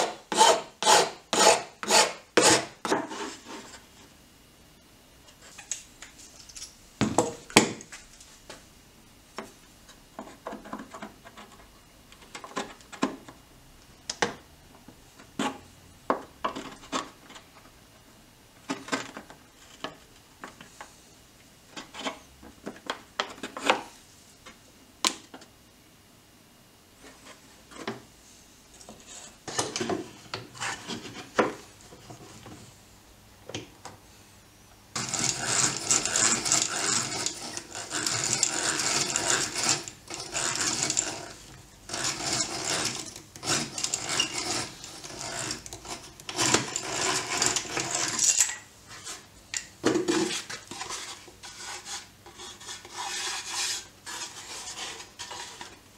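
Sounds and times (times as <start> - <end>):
hand drill grinding into wood: 35.0 - 48.5.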